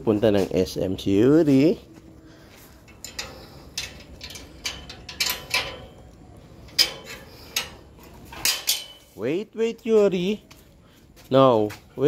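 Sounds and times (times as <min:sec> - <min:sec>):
light clicks and clinks: 0:02.8 - 0:09.2.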